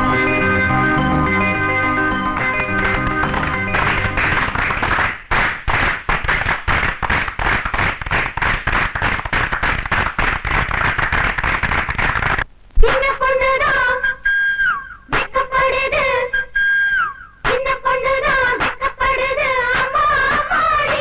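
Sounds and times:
melody line: 0.0s - 4.5s
fast loud percussion strikes: 2.4s - 12.4s.

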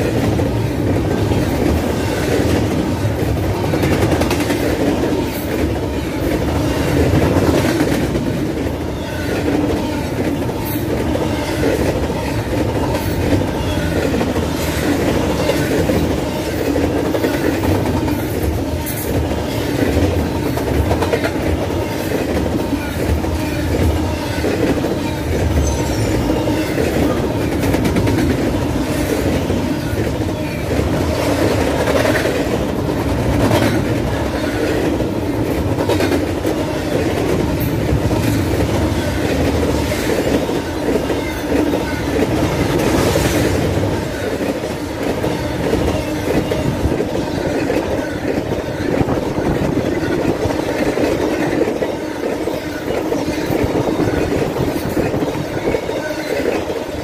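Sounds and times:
freight train wheels rumbling on rail: 0.0s - 57.0s
high wheel squeals: 25.1s - 26.9s.

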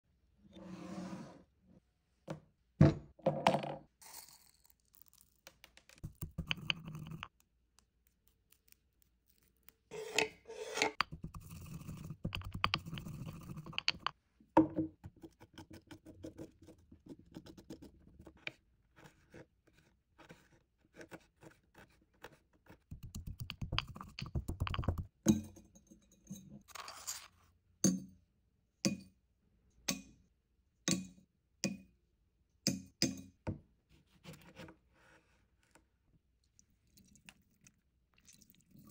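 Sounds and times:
utensils tapping and knocking: 6.0s - 7.3s, 10.0s - 14.9s, 22.9s - 25.5s
spoon scraping ginger skin: 6.0s - 14.1s.

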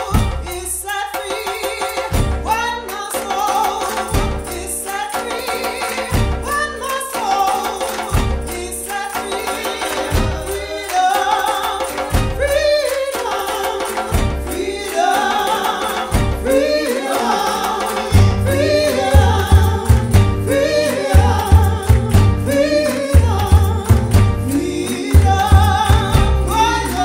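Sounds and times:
gospel-style singing: 0.0s - 27.0s
heavy pulsing bass line: 18.2s - 27.0s.

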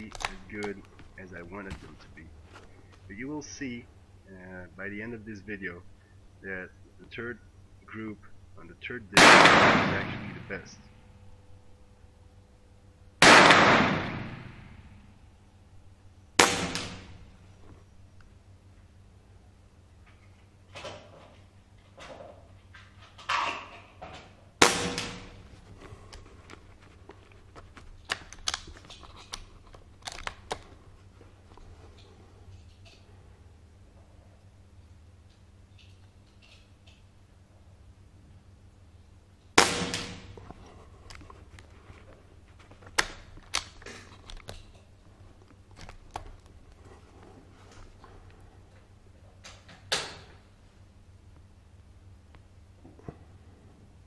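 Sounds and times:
rustling and handling sounds: 0.0s - 3.9s, 25.1s - 37.1s, 40.2s - 51.5s
air rifle shot crack: 9.2s - 10.6s, 13.2s - 15.0s, 16.4s - 17.3s, 24.6s - 25.6s, 39.6s - 40.4s.

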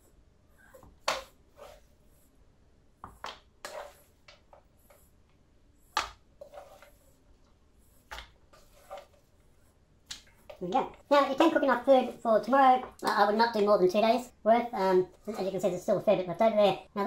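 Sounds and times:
spoon scraping dog food: 3.2s - 5.3s, 5.9s - 7.3s, 7.9s - 9.6s.

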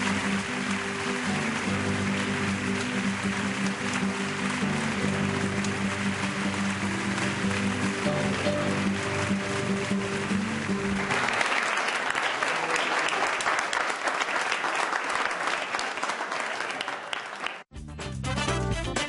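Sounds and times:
background music: 0.0s - 11.6s, 17.7s - 19.0s
audience applauding: 0.0s - 17.7s.

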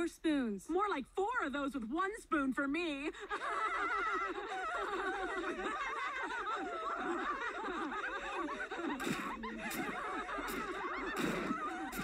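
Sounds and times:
women laughing: 3.2s - 12.0s.

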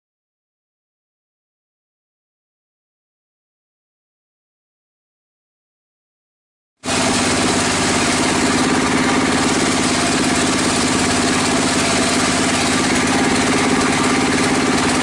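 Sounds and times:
circular saw ripping timber: 6.8s - 15.0s.

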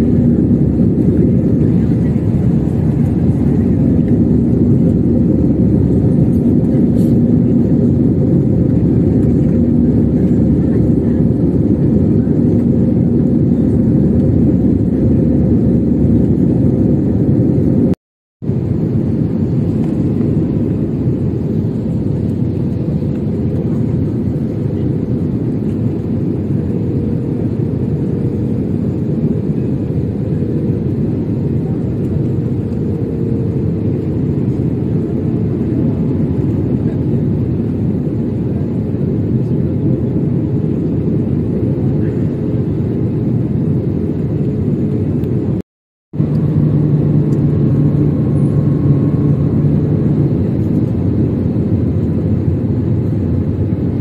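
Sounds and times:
jet engines rumbling: 0.0s - 45.6s, 46.2s - 54.0s.

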